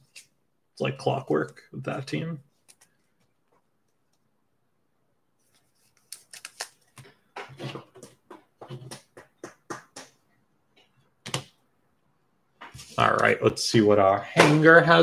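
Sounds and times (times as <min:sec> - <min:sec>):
cards clicking: 0:05.9 - 0:07.1.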